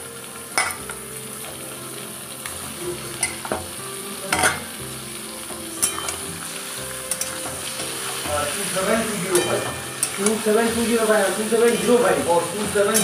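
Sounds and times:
meat sizzling in hot oil: 0:00.0 - 0:13.0
spatula clinking against pan: 0:05.8 - 0:06.2, 0:07.1 - 0:08.3, 0:09.3 - 0:10.5.

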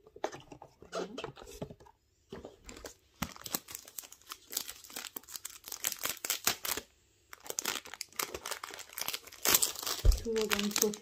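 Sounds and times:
plastic wrapping crinkling: 0:02.7 - 0:11.0.

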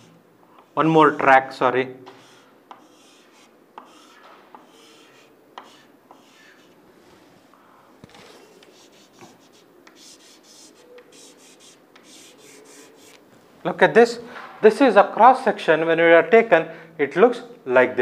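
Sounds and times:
chalk scratching on blackboard: 0:00.0 - 0:01.2, 0:02.0 - 0:06.8, 0:08.4 - 0:13.2
light chalk taps: 0:02.0 - 0:06.8, 0:08.6 - 0:13.2.

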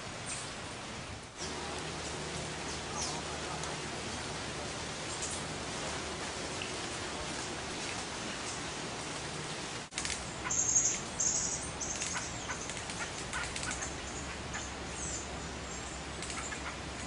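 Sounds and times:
steady hiss: 0:00.0 - 0:17.0
small birds high call notes: 0:10.4 - 0:16.8.

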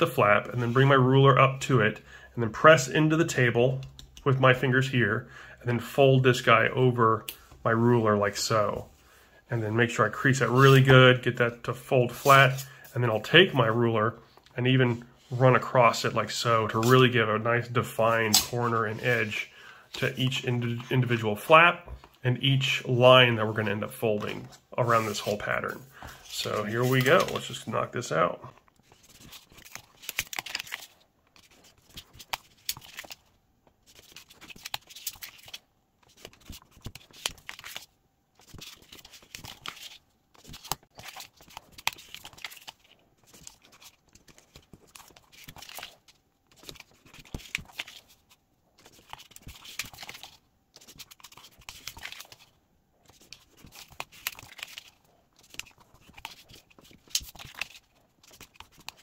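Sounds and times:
ruler scraping paper: 0:12.1 - 0:12.8, 0:23.4 - 0:27.6
paper rustling and crinkling: 0:23.4 - 0:59.0.

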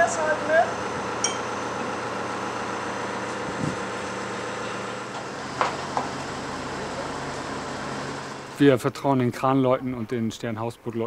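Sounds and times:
crane engine running: 0:00.0 - 0:08.7.

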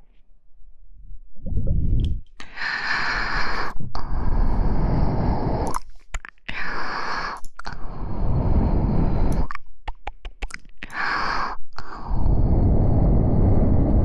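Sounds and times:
breath blown into microphone: 0:01.7 - 0:05.9, 0:06.5 - 0:09.5, 0:10.9 - 0:14.0.

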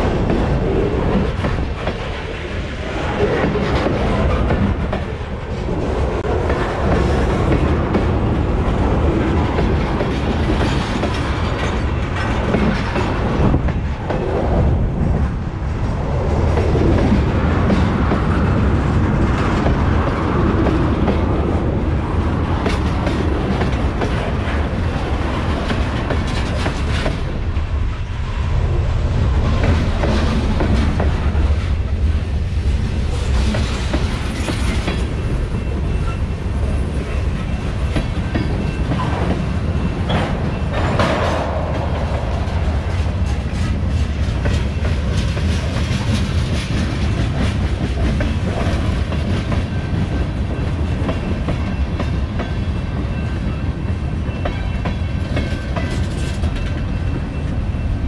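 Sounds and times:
wheels clacking over rail joints: 0:00.0 - 0:15.2, 0:33.0 - 0:58.0
freight train rumbling: 0:00.0 - 0:58.0.

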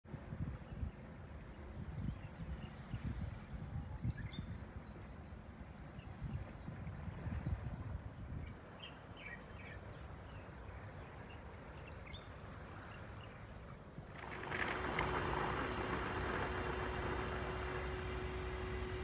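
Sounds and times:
boat hum: 0:04.6 - 0:19.0
low rumble: 0:13.8 - 0:19.0
hiss of falling water spray: 0:14.2 - 0:19.0.

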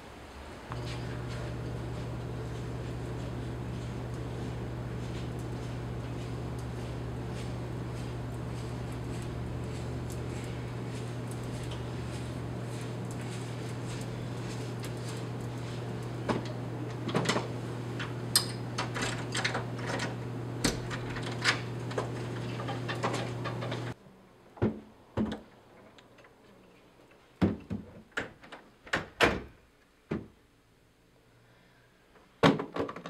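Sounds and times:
steady low hum: 0:00.0 - 0:24.0
door being unlocked and shut: 0:16.3 - 0:23.8.

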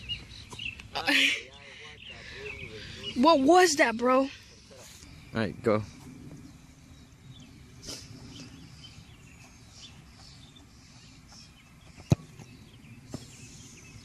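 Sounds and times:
birds chirping: 0:00.0 - 0:14.0
ball kicked thud: 0:12.0 - 0:12.5.

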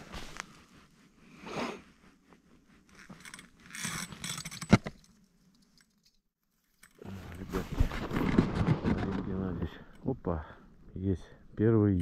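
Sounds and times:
rustling: 0:00.0 - 0:10.2
gear rattling and clicking: 0:02.9 - 0:10.2.

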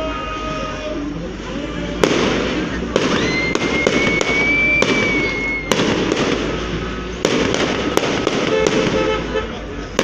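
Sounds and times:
firework crackle: 0:01.9 - 0:10.0
firework whistle: 0:02.0 - 0:06.7
firework shells bursting: 0:02.0 - 0:09.2.

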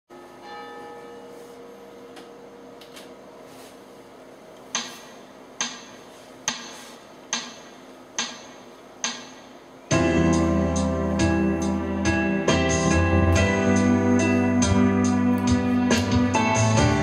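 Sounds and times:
keyboard backing track: 0:04.7 - 0:17.0.

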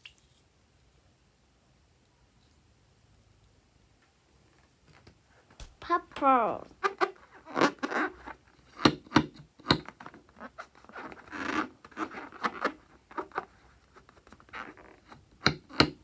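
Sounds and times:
fingernails scratching a balloon: 0:06.8 - 0:16.0.

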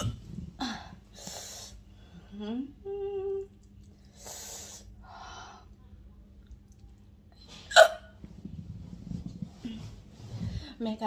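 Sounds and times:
closed-mouth hum: 0:00.0 - 0:10.8
breathing: 0:04.0 - 0:05.8, 0:09.6 - 0:10.8
woman hiccuping: 0:07.7 - 0:08.1.

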